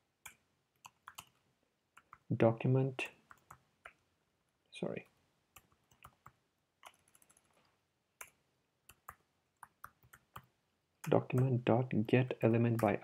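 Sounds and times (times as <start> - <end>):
keyboard typing clicks: 0.2 - 1.4, 5.6 - 7.5, 8.2 - 11.5.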